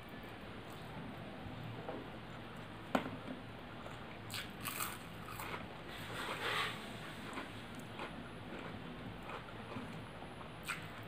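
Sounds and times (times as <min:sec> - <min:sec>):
chewing and wet mouth noises: 0:07.1 - 0:11.0.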